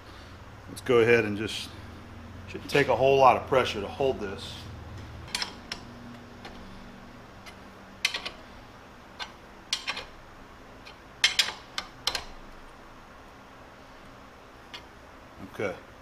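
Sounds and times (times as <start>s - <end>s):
metallic clicks of nut spinning: 7.4s - 8.5s, 9.2s - 10.2s, 10.8s - 12.4s.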